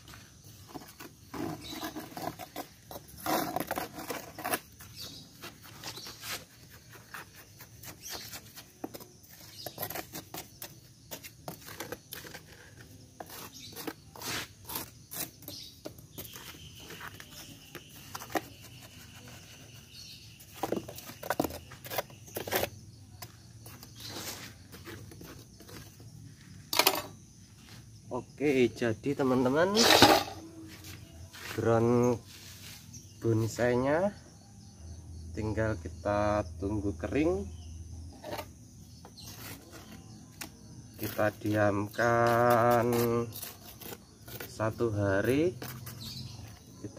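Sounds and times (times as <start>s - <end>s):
metal spoon scraping cement: 0.6s - 26.0s, 29.6s - 30.6s, 38.2s - 46.8s.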